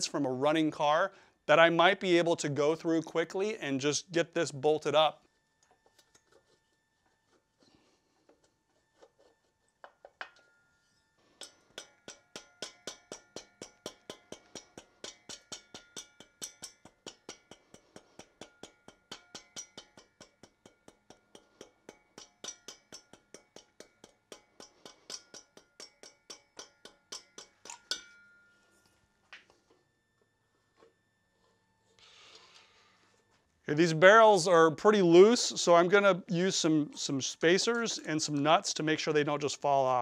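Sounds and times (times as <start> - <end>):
mallet tapping on metal: 11.4 - 28.4.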